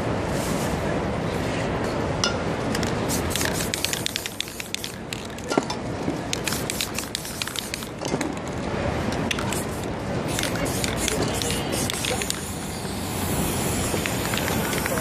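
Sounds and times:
low street rumble: 0:00.0 - 0:15.0
spray paint can hissing: 0:03.1 - 0:05.4, 0:06.3 - 0:08.0, 0:09.3 - 0:15.0.

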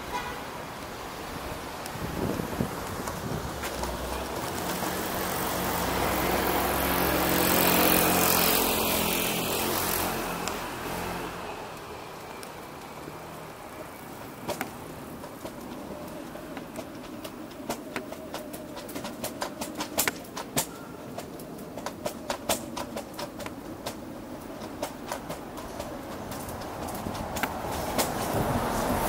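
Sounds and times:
car passing by: 0:00.0 - 0:17.8, 0:24.7 - 0:29.0.

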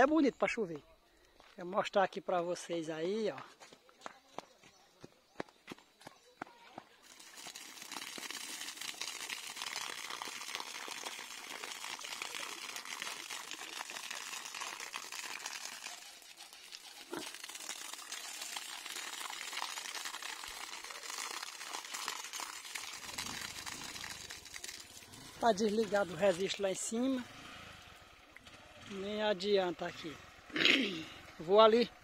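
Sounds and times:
water pouring onto ground: 0:07.0 - 0:29.0.

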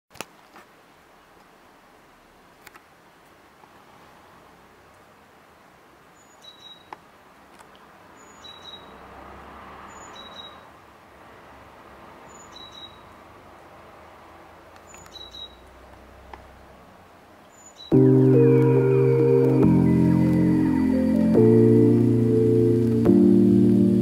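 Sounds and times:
small bird two-note chirp: 0:06.3 - 0:06.9, 0:08.2 - 0:08.9, 0:12.4 - 0:13.0, 0:14.9 - 0:15.6.

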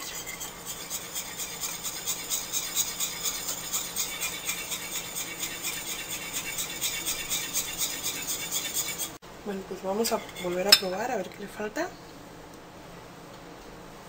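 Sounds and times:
whisk beating in glass bowl: 0:00.0 - 0:09.2, 0:10.0 - 0:11.2.

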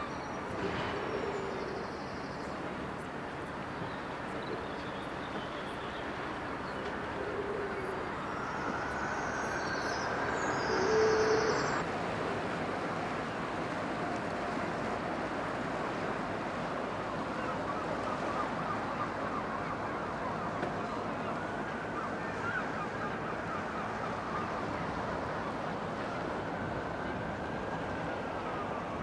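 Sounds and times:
distant city and harbour noise: 0:00.0 - 0:29.0
faint rising whine: 0:06.8 - 0:11.8.

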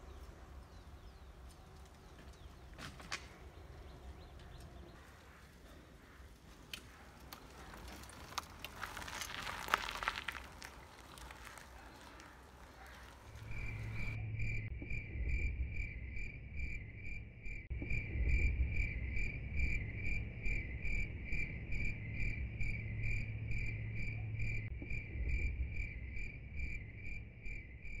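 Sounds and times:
faint outdoor noise: 0:00.0 - 0:28.0
low rumble: 0:13.2 - 0:28.0.

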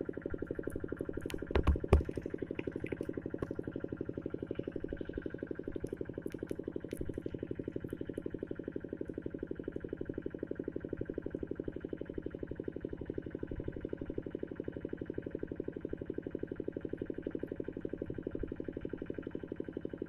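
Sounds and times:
sharp knocks: 0:01.3 - 0:02.7.

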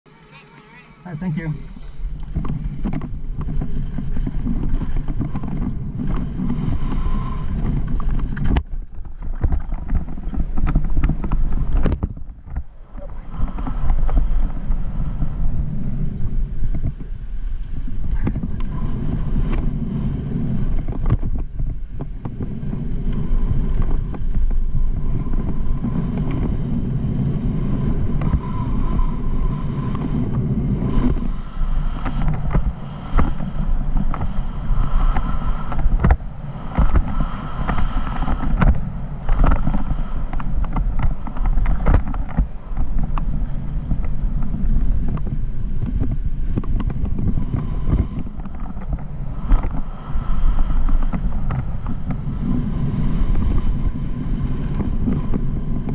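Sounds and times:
wind buffeting a camera: 0:01.1 - 0:55.9
bike knocking and rattling: 0:02.0 - 0:14.8.

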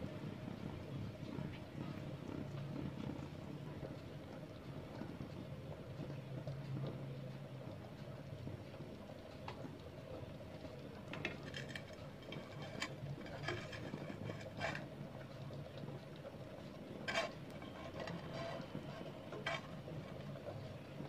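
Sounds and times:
spatula scraping frying pan: 0:11.1 - 0:15.4, 0:16.8 - 0:20.3.

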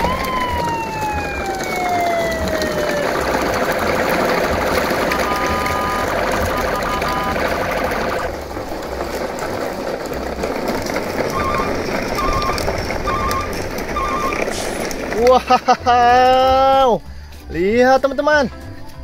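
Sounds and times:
toy truck wheels rolling on concrete: 0:00.0 - 0:19.0
short electronic beeps: 0:05.2 - 0:08.3.

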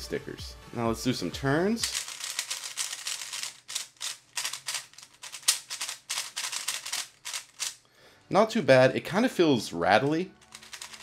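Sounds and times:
puzzle cube clicking turns: 0:01.8 - 0:07.8, 0:10.4 - 0:11.0.

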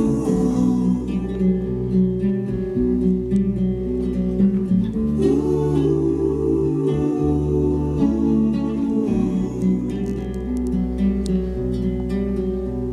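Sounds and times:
acoustic guitar music with bass: 0:00.0 - 0:12.9.

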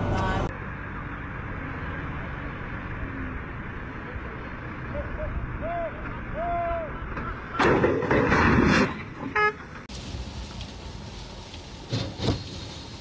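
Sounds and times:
outdoor background noise: 0:00.0 - 0:13.0
trailer crashing to the ground: 0:07.1 - 0:09.9.

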